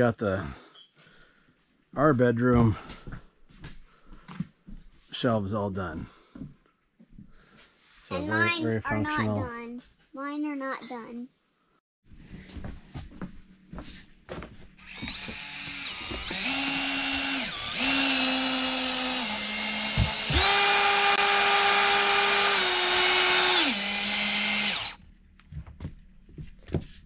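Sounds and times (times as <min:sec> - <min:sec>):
cordless drill whining: 0:14.8 - 0:25.0.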